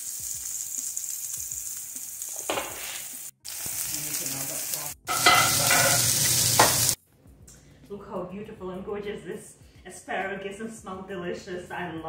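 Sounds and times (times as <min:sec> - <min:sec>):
vegetables sizzling in a grill pan: 0:00.0 - 0:07.0.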